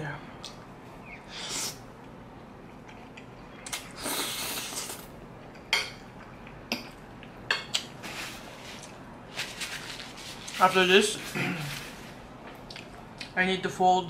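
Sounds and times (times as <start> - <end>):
chewing: 12.4 - 13.3.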